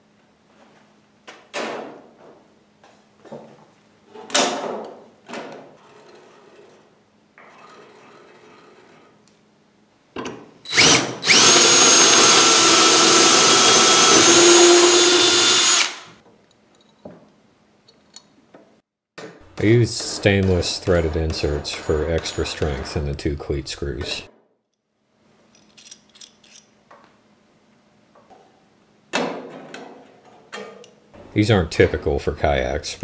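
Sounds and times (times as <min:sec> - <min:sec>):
electric drill boring metal: 0:10.7 - 0:16.2.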